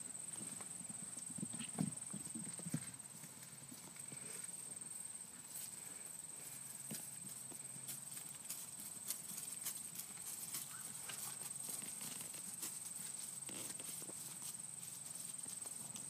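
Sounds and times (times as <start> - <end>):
horse hoofbeats on grass: 0.0 - 16.0.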